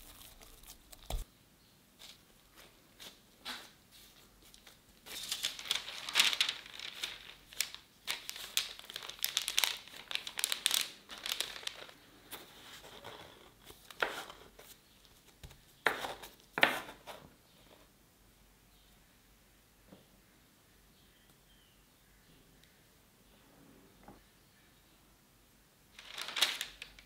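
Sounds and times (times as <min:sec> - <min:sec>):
parchment paper crinkling: 0:00.0 - 0:01.3, 0:02.0 - 0:17.1, 0:26.0 - 0:27.0.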